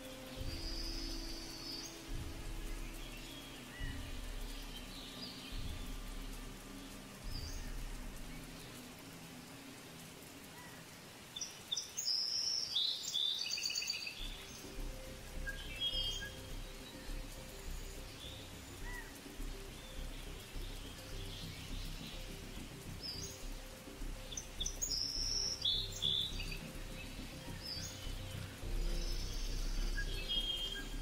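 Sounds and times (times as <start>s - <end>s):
low steady hum: 0.0s - 10.9s, 14.2s - 31.0s
high bird chirps: 11.4s - 31.0s.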